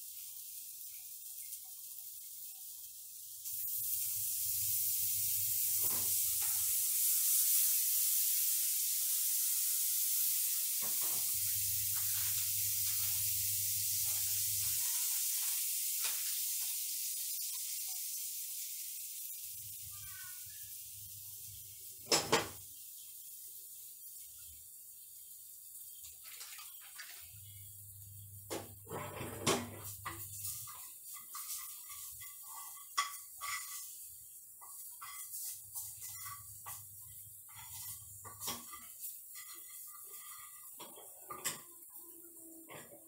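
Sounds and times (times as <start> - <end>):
fat sizzling in frying pan: 0.0 - 43.0.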